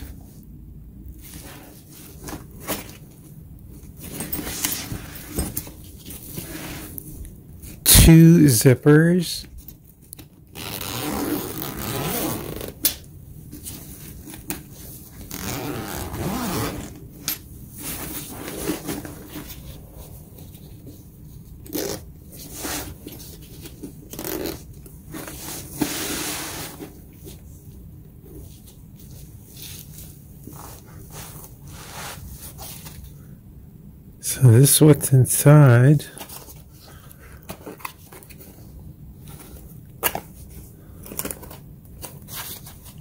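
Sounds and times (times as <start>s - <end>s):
fabric handling noise: 0.0s - 33.2s
zippers being pulled open: 10.6s - 13.0s, 15.2s - 17.4s, 21.6s - 22.0s, 24.1s - 24.6s.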